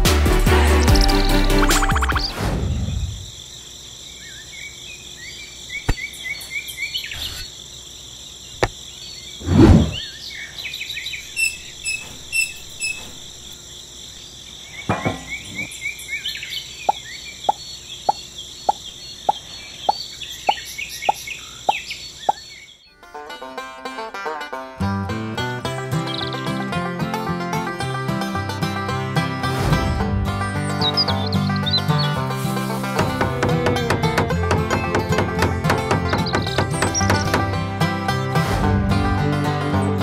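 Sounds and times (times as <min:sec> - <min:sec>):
insects chirring: 0:00.9 - 0:23.5
bird chirps: 0:08.5 - 0:22.9
small parts knocking: 0:33.0 - 0:37.6.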